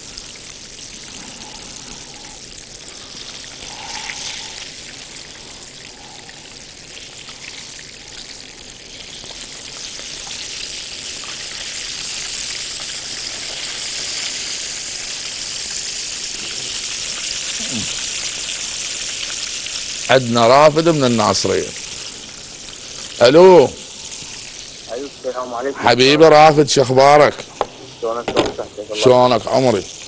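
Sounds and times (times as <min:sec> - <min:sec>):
chicken frying in oil: 0:00.0 - 0:25.2, 0:28.4 - 0:30.0.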